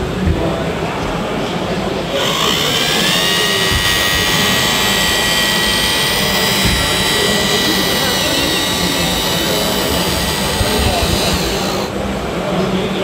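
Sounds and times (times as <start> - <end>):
small motor whining: 2.1 - 12.0.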